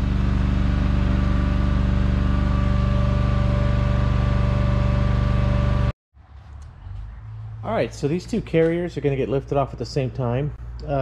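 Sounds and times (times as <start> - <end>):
machine low-pitched hum: 0.0 - 7.9.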